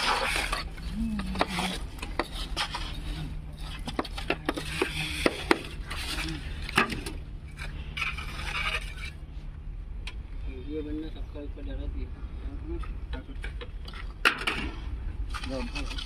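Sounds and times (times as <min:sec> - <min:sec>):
trowels scraping wet concrete: 0:00.0 - 0:09.3, 0:15.3 - 0:16.0
steady low hum: 0:00.0 - 0:16.0.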